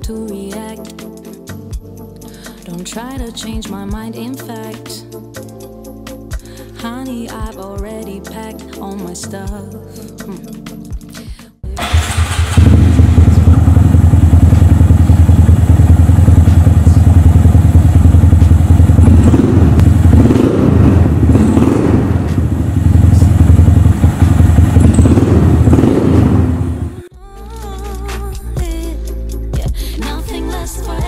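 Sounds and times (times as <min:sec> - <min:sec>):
motorcycle engine running: 0:11.8 - 0:27.1.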